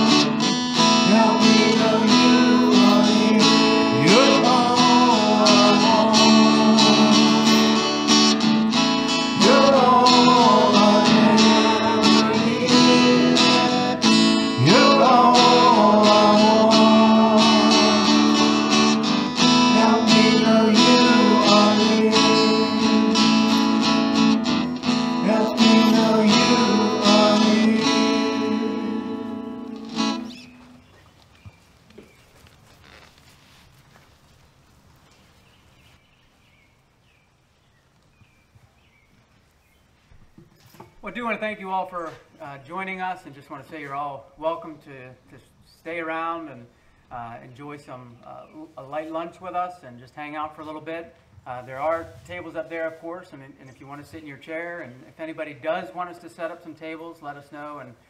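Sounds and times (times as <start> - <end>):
strummed acoustic guitar: 0.0 - 30.8.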